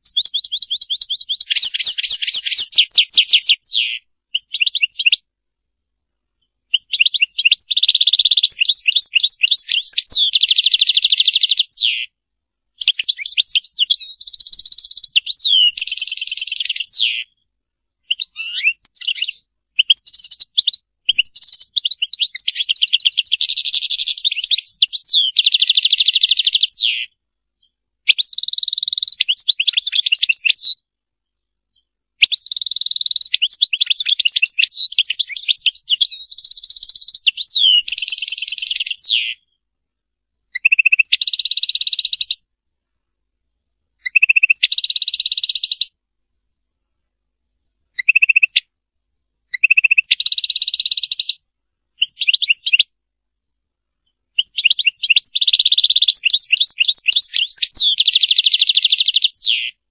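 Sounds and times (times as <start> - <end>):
goldfinch singing trills: 0.0 - 5.2, 6.7 - 12.1, 12.8 - 17.4, 18.0 - 27.1, 32.3 - 39.6, 48.0 - 48.7, 54.4 - 59.8.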